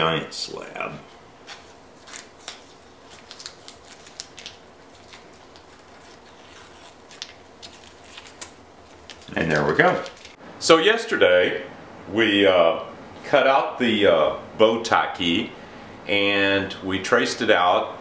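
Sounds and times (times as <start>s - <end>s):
paper towel rustling: 0.9s - 10.4s
tape peeling off wood: 1.4s - 10.4s.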